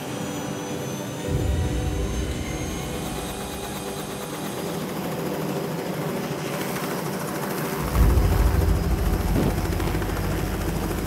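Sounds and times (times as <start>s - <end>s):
helicopter engine and rotor: 0.0s - 11.0s
loud deep rumble: 1.3s - 4.3s, 7.8s - 11.0s.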